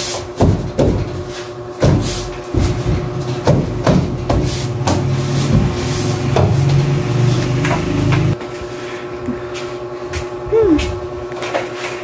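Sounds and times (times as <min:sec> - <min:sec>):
steady low hum: 0:00.0 - 0:12.0
plastic panel knocks and rubbing: 0:01.8 - 0:06.8.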